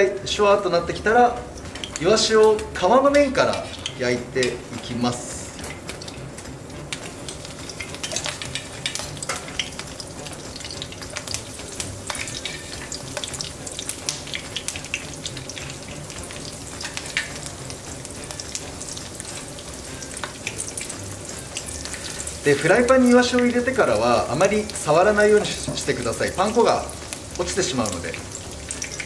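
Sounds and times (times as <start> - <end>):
fish frying in oil: 0.0 - 29.0.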